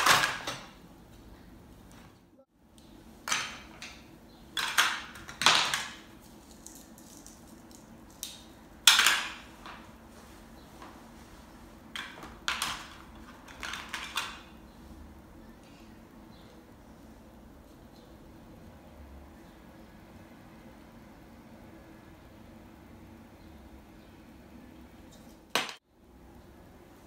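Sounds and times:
plastic toys clattering: 4.6s - 8.3s, 12.0s - 14.5s.

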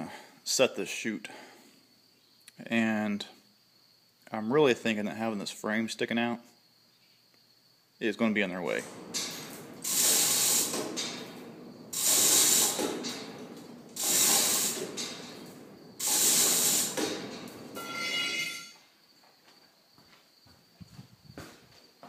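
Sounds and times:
metal chute scraping rattle: 8.7s - 18.7s
ringing metal squeal: 17.8s - 18.8s.

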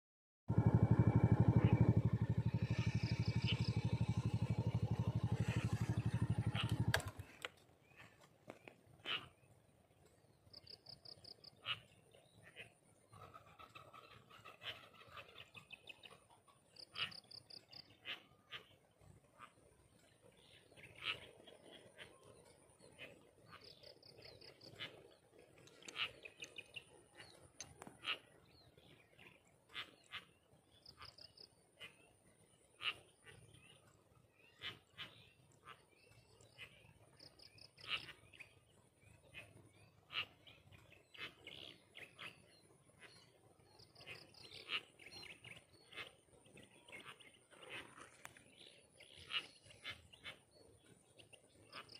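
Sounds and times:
small engine chugging: 0.5s - 9.3s
birds chirping: 0.5s - 51.9s.

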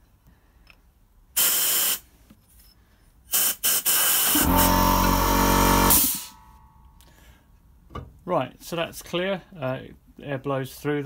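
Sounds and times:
compressed air blow gun hissing: 1.4s - 2.0s, 3.3s - 4.8s
low hum: 4.4s - 7.1s.

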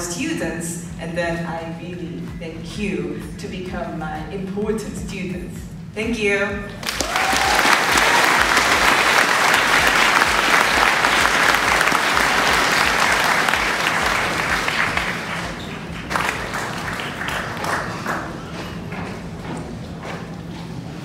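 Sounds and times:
audience applauding: 6.8s - 19.0s.

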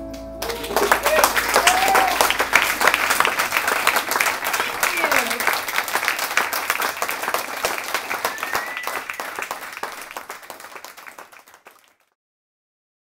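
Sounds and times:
audience applauding: 0.1s - 12.1s
high whistle: 7.2s - 10.1s.

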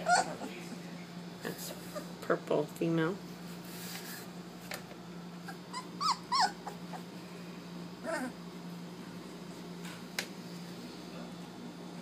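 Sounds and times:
puppies whimpering and yelping: 0.0s - 0.8s, 5.4s - 7.2s, 8.0s - 8.4s.

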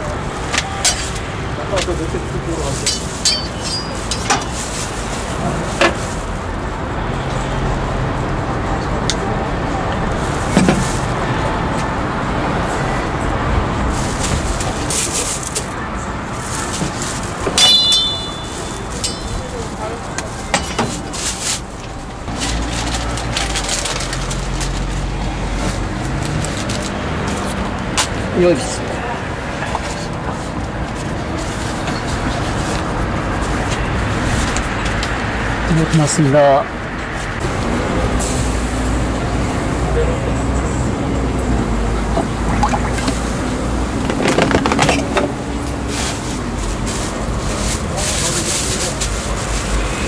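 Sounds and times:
low traffic rumble: 0.0s - 50.0s
paper crinkling and rustling: 18.2s - 27.5s, 43.1s - 49.8s.

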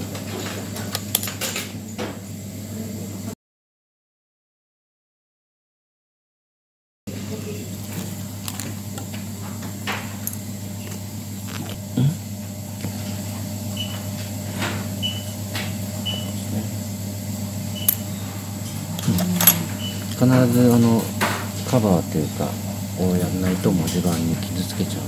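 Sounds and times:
steady hum: 7.1s - 25.0s.

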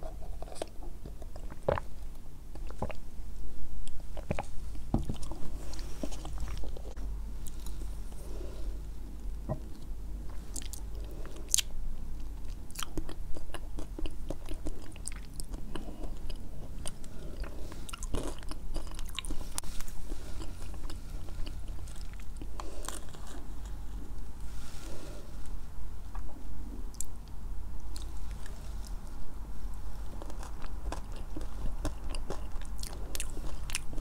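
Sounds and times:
crunchy chewing: 0.0s - 3.0s, 3.8s - 8.6s, 9.4s - 24.3s, 29.7s - 34.0s.

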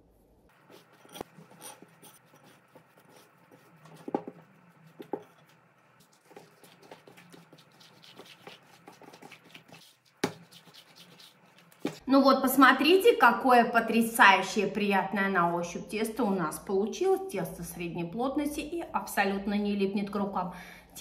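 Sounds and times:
hands kneading dough: 0.5s - 12.0s.

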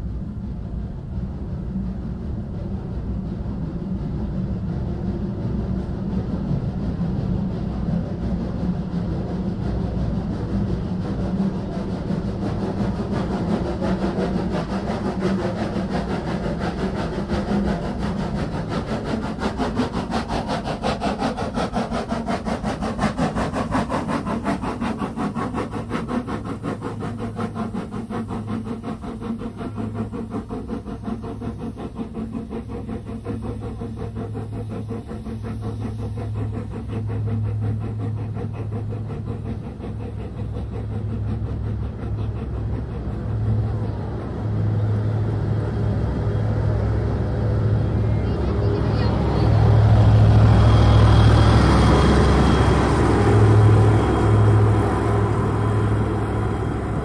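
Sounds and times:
diesel locomotive engine hum: 0.0s - 57.0s
steam locomotive chuffing: 0.0s - 57.0s.

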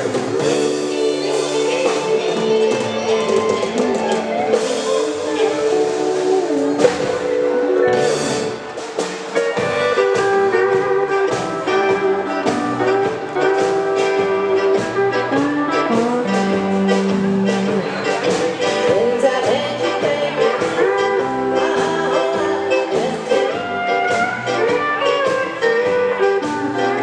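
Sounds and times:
live band with electric guitars: 0.0s - 27.0s.

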